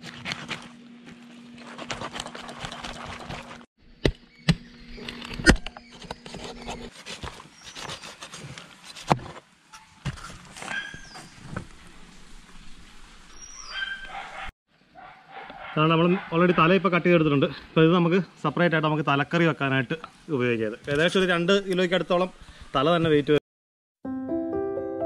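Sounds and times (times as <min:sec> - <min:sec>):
knife cutting through fish: 0:00.0 - 0:00.8, 0:01.6 - 0:03.6.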